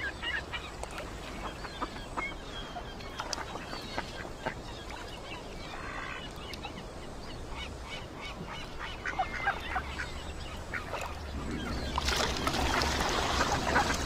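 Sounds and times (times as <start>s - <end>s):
birds calling: 0.0s - 14.0s
steady low hum: 7.1s - 14.0s.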